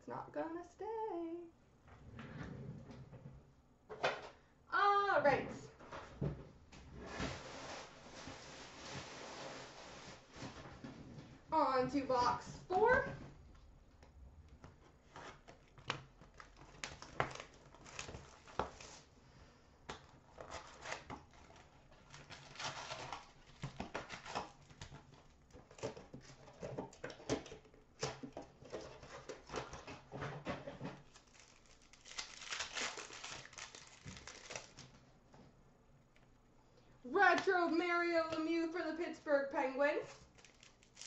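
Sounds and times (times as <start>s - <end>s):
wrapper crinkling and tearing: 15.9s - 19.1s, 20.3s - 26.6s, 31.0s - 34.9s, 40.1s - 41.0s.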